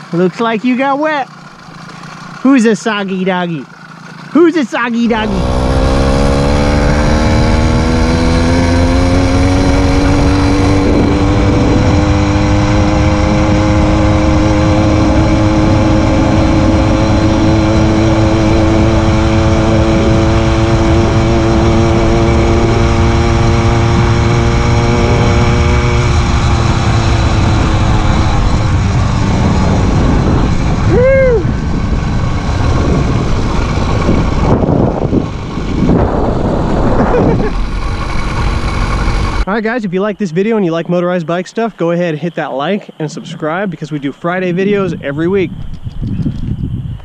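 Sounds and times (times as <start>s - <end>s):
small bicycle engine running: 0.0s - 11.9s
rough rumbling noise: 0.0s - 47.0s.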